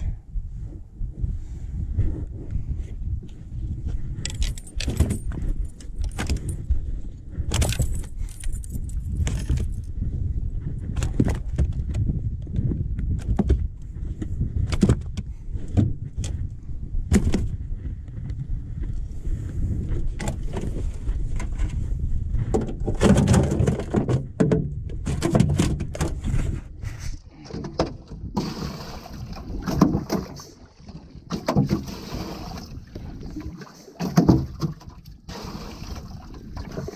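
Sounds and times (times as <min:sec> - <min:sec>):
steady low rumble: 0:00.0 - 0:23.0
fish handling clicks and knocks: 0:04.2 - 0:06.7, 0:07.5 - 0:09.8, 0:13.0 - 0:13.7, 0:14.6 - 0:16.4, 0:17.1 - 0:17.6, 0:22.5 - 0:26.4, 0:27.4 - 0:28.6, 0:29.6 - 0:32.0, 0:32.9 - 0:35.2.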